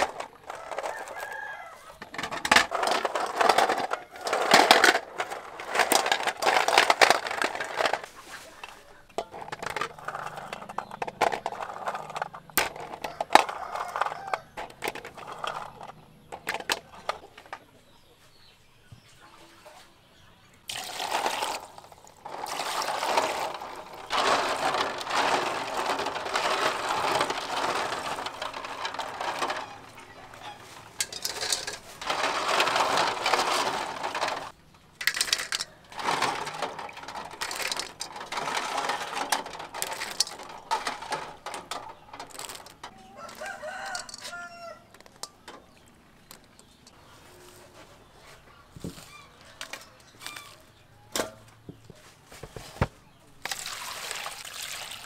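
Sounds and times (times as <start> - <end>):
eggshells clattering together: 0.0 - 17.6, 20.7 - 46.9
rooster crowing: 0.5 - 2.0, 13.1 - 14.6, 43.0 - 44.9
water splashing in metal basin: 53.4 - 55.0.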